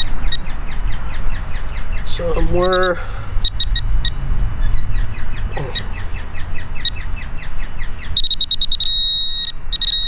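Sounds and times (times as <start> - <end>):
metal detector beeping: 2.4 - 4.2, 8.2 - 10.0.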